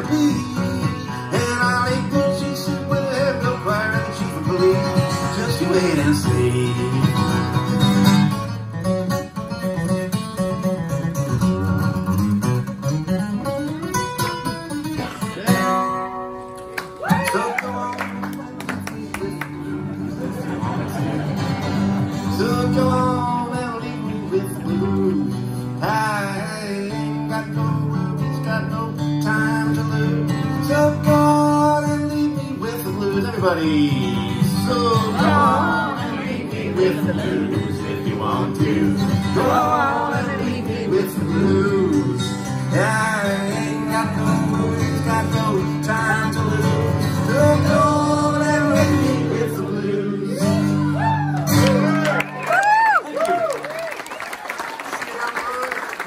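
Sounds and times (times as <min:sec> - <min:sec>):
man singing: 0:00.0 - 0:07.8, 0:17.1 - 0:19.9, 0:22.1 - 0:51.0
acoustic guitar strummed and picked: 0:00.0 - 0:52.4.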